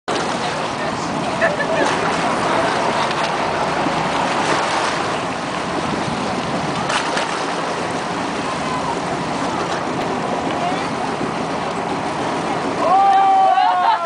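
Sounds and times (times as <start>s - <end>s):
faint splashes: 0.1s - 14.0s
water rushing around boat: 0.1s - 14.0s
wind noise: 2.0s - 12.8s.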